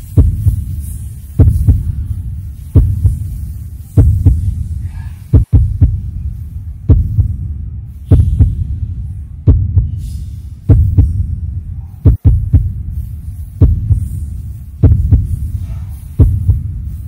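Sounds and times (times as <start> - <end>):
deep heartbeat-like double thump: 0.1 - 0.8, 1.4 - 2.1, 2.7 - 3.3, 4.0 - 4.7, 5.3 - 6.2, 6.9 - 10.0, 10.7 - 13.0, 13.6 - 14.2, 14.8 - 15.6, 16.2 - 16.8.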